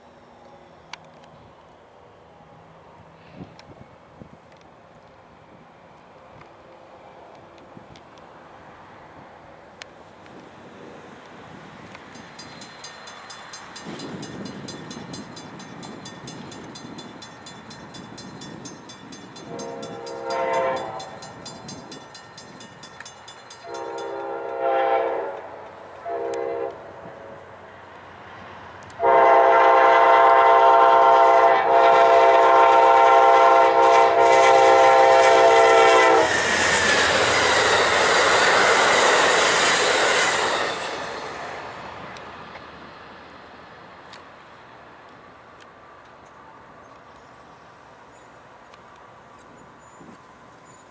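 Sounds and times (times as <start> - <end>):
train wheels on rails: 0.0 - 50.9
locomotive engine passing: 6.8 - 46.8
railroad crossing bell ringing: 12.1 - 24.6, 36.6 - 41.8
locomotive air horn blasts: 19.4 - 21.2, 23.6 - 26.9, 29.0 - 36.4.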